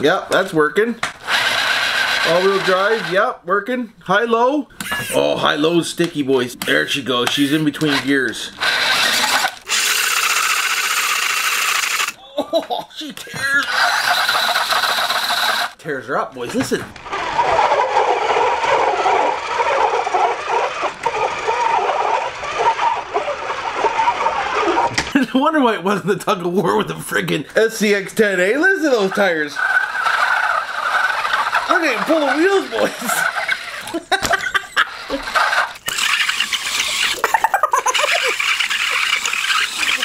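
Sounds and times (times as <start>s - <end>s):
toy car motor running hard: 1.2s - 3.3s, 7.4s - 12.2s, 13.6s - 15.8s, 17.0s - 25.1s, 28.9s - 40.0s
rubber tires squealing on table: 13.6s - 15.7s, 17.0s - 25.1s, 28.9s - 34.0s, 34.6s - 40.0s.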